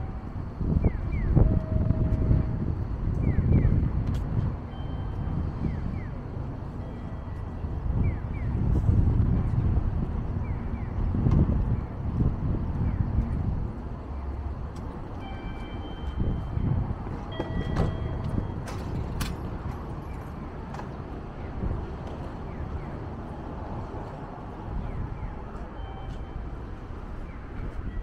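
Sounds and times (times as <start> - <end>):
low traffic rumble: 0.0 - 28.0.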